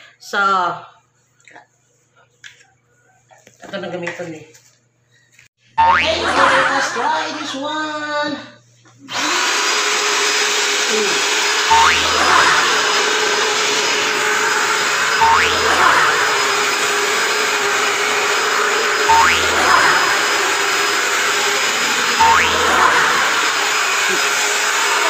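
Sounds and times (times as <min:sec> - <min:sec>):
short rising pitch sound: 0:05.8 - 0:06.2, 0:11.7 - 0:13.4, 0:14.0 - 0:16.8, 0:19.0 - 0:20.4, 0:22.2 - 0:23.6
vacuum cleaner motor hum: 0:09.1 - 0:25.0.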